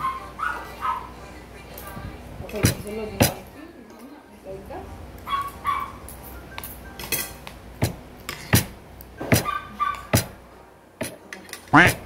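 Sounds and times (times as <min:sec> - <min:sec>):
cutlery clinking on a plate: 0:06.0 - 0:10.3, 0:11.0 - 0:11.8.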